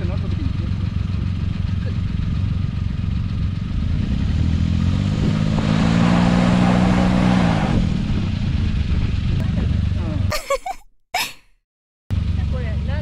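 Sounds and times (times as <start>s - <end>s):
car engine revving: 3.0s - 10.3s
tyres rushing in mud: 5.2s - 7.9s.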